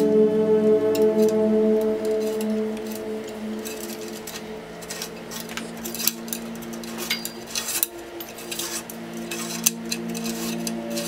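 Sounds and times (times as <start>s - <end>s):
soft background music: 0.0s - 11.0s
metallic clicks of tools and parts: 3.6s - 11.0s.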